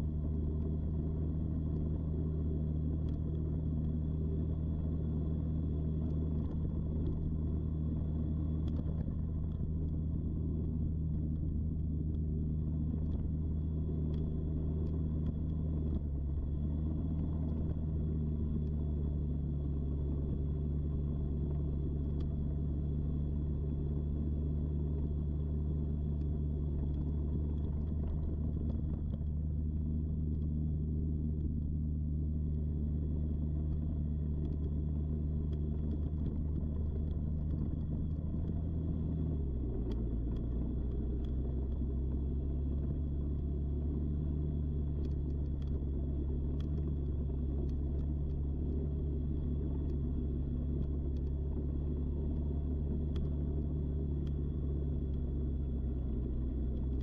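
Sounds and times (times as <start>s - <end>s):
quad bike engine running: 32.5s - 57.0s.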